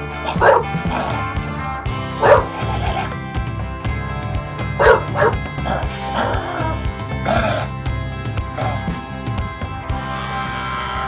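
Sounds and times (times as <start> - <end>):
background music: 0.0 - 11.0
dog barking in short woofs: 0.3 - 0.8, 2.2 - 2.6, 4.8 - 5.4.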